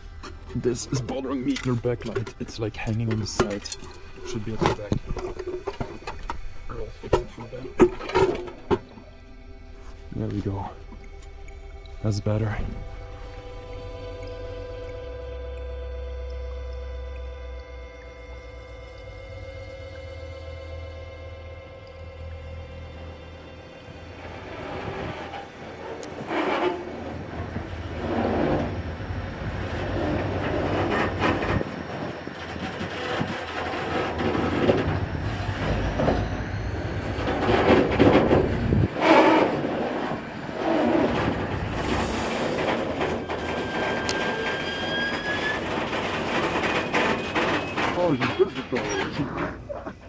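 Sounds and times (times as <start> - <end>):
train wagons clanking and creaking: 0.0 - 9.2, 23.0 - 50.0
locomotive engine rumble: 0.0 - 50.0
thin rising squeal: 18.3 - 49.7.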